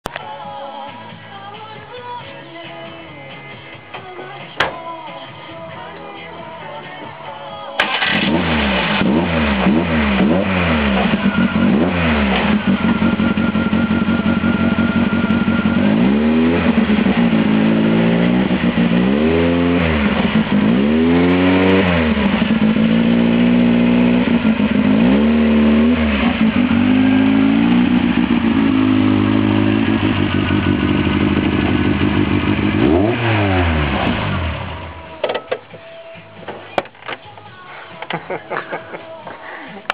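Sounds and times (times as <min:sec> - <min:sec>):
unsilenced car engine revving: 0:07.8 - 0:35.2.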